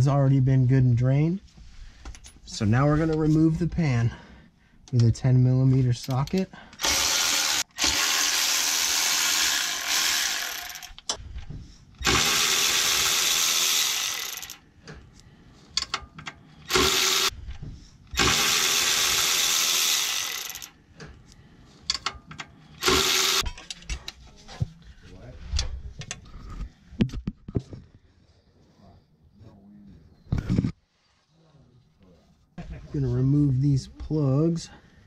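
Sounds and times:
electric ratchet running: 0:06.8 - 0:11.0, 0:12.0 - 0:14.6, 0:16.6 - 0:17.3, 0:18.1 - 0:20.8, 0:22.8 - 0:23.4.

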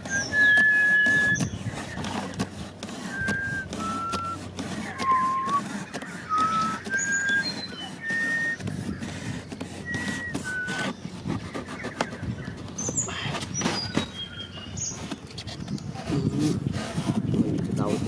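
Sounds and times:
whistled notes: 0:00.0 - 0:01.5, 0:03.1 - 0:05.6, 0:06.2 - 0:08.6, 0:09.8 - 0:11.0
utility knife cutting cardboard: 0:00.0 - 0:18.0.

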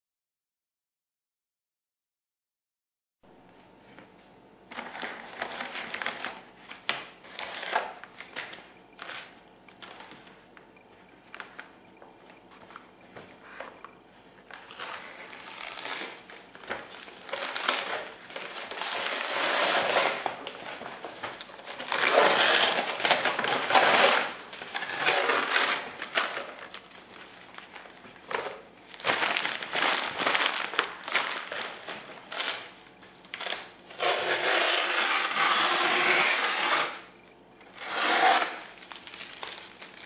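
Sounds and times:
paper crinkling and rustling: 0:04.7 - 0:10.4, 0:14.4 - 0:36.4, 0:37.9 - 0:40.0.

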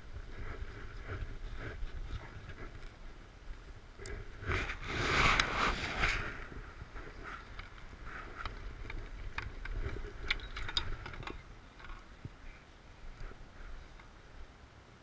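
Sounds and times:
hand rubbing microphone: 0:00.0 - 0:11.4
light clicks and knocks: 0:07.5 - 0:12.4.

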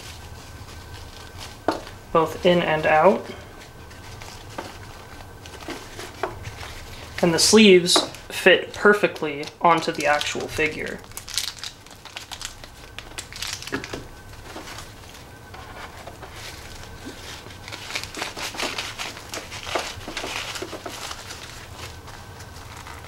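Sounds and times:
fabric rustling: 0:00.0 - 0:08.3, 0:14.2 - 0:23.0
low steady hum: 0:00.0 - 0:23.0.

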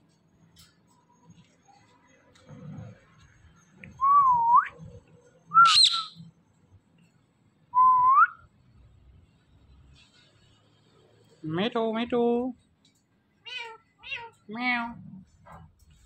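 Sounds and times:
parakeet whistling: 0:05.5 - 0:06.2
parakeet shriek: 0:05.6 - 0:06.2.

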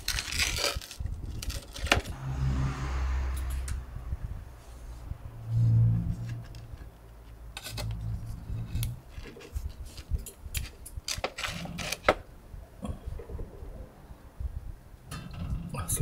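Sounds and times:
pizza crust tearing and cracking: 0:00.0 - 0:02.1.

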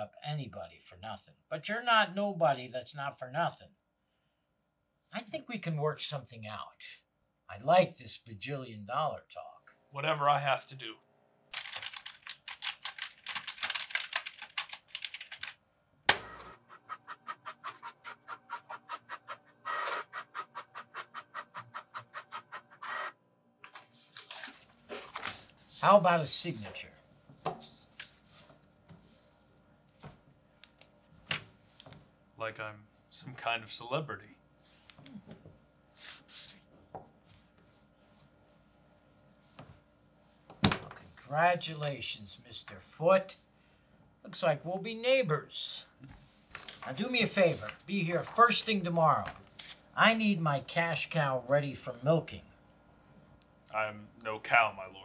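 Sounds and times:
computer keyboard typing: 0:11.5 - 0:15.6
pen scratching on paper: 0:16.7 - 0:23.1
paper rustling: 0:24.0 - 0:25.9, 0:27.6 - 0:30.2, 0:46.2 - 0:49.8.

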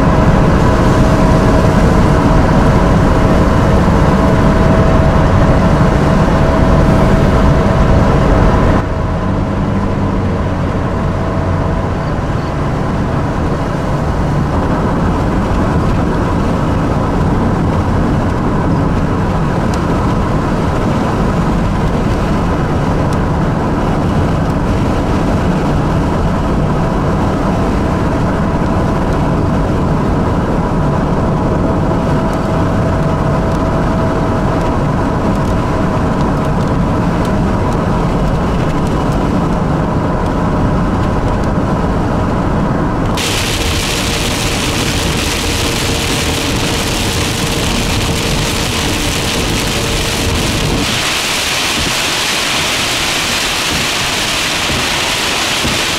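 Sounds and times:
car road and engine noise: 0:00.0 - 0:55.9.

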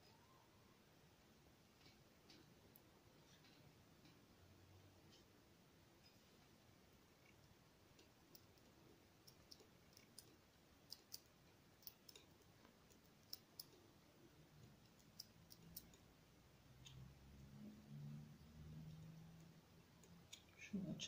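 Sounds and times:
palette knife clicking and tapping: 0:08.0 - 0:13.8, 0:14.6 - 0:16.1.

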